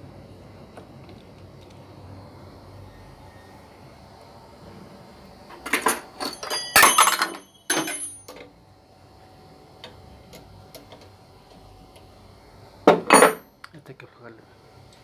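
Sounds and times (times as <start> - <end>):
metal tools clanking together: 5.7 - 8.4, 13.0 - 13.4.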